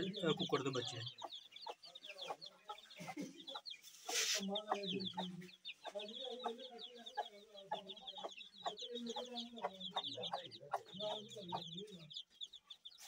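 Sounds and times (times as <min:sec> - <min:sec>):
chicks peeping: 0:00.0 - 0:13.0
short hiss: 0:04.0 - 0:04.5.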